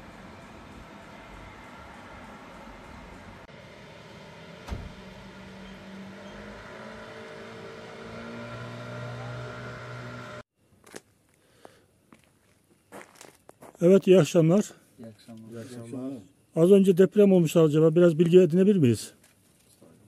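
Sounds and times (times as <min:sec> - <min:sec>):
vehicle engine running: 0:00.0 - 0:10.4.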